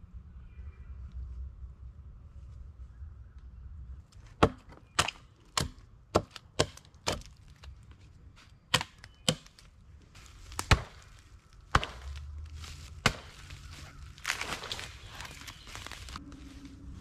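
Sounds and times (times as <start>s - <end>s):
hatchet chopping wood: 4.4s - 7.4s, 8.7s - 9.7s, 10.5s - 12.3s, 13.0s - 13.6s.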